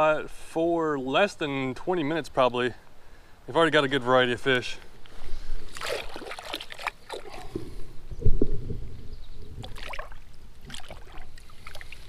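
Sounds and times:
creek water splashing: 5.1s - 8.5s, 9.4s - 12.0s.

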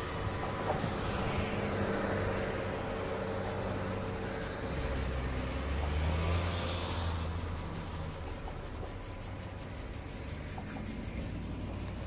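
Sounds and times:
car engine driving away: 0.0s - 12.0s.

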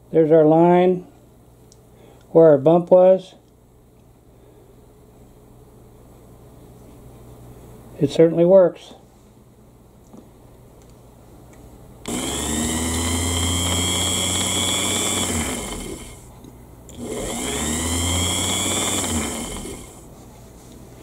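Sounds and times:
sewing machine motor whirring: 12.1s - 16.3s, 16.9s - 20.0s.

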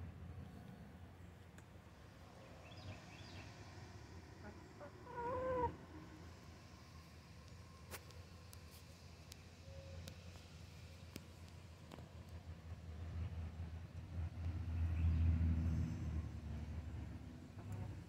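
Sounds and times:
hen calling: 4.4s - 6.1s.

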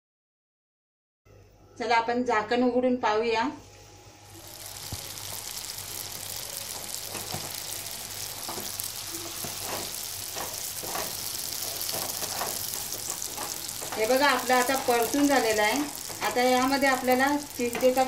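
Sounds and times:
food sizzling in a pan: 3.7s - 18.0s
spatula stirring and scraping: 8.2s - 16.6s.

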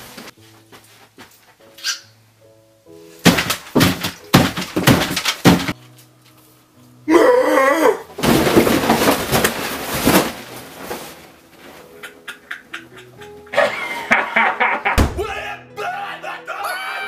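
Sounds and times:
quiet background music: 0.0s - 17.0s
crashing and clattering: 3.2s - 5.8s, 8.2s - 11.4s
wavering shouted cry: 15.2s - 17.0s.

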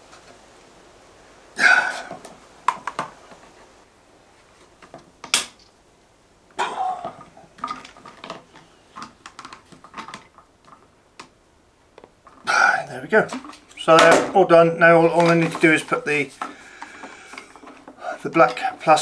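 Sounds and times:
plastic fittings clicking and scraping: 7.1s - 11.3s, 15.0s - 19.0s.

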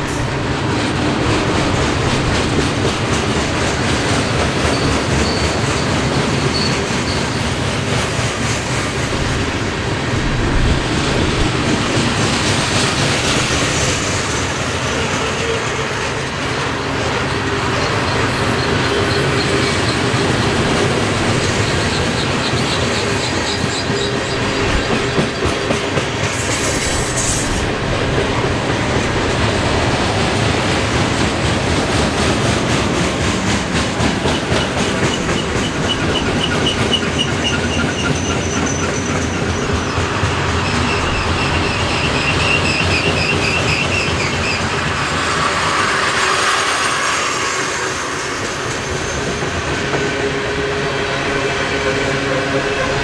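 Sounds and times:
train wheels clattering on rails: 0.0s - 53.0s
high-pitched wheel squeal: 4.6s - 7.6s, 35.2s - 40.0s, 40.6s - 49.6s.

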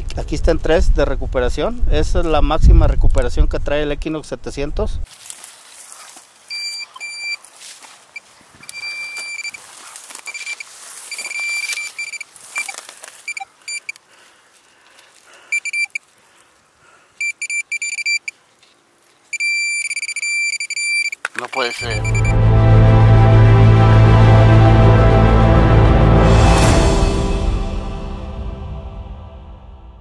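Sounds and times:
digging in dry soil: 5.0s - 19.8s
metal detector beeping: 6.5s - 7.4s, 8.1s - 14.0s, 15.5s - 16.0s, 17.2s - 18.4s, 19.3s - 22.4s.

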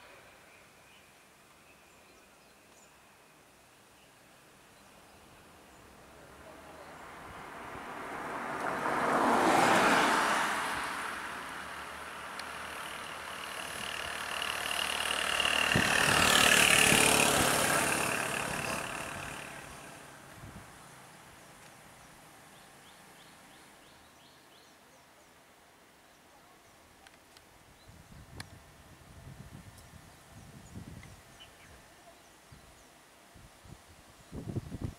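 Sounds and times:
vehicles driving past: 5.6s - 24.2s.

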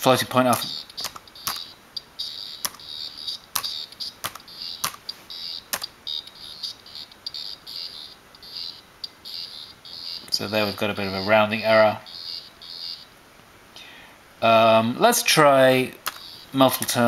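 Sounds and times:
buzzy piezo buzzer chirping: 0.0s - 13.2s, 15.4s - 17.0s
laptop keys clicking: 0.5s - 10.4s, 16.0s - 16.4s.

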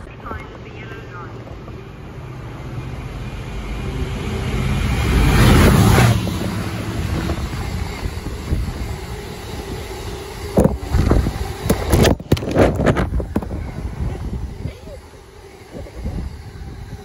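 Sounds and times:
freight wagons rumbling on rails: 0.0s - 17.0s
locomotive passing: 0.0s - 17.0s.

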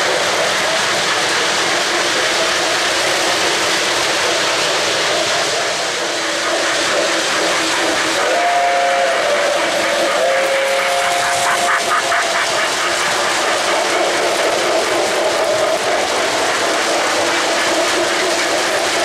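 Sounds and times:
model train wheels rushing: 0.0s - 19.0s
two-note train whistle: 8.2s - 9.6s, 10.2s - 11.8s.

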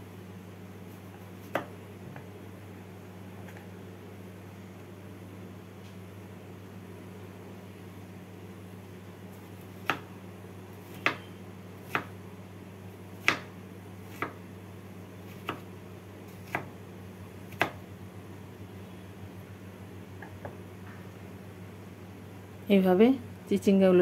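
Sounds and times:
steady low hum: 0.0s - 24.0s
knife chopping on wooden board: 1.4s - 1.7s, 10.9s - 11.3s, 11.9s - 12.1s, 13.2s - 13.5s, 15.3s - 15.7s, 16.4s - 16.7s.

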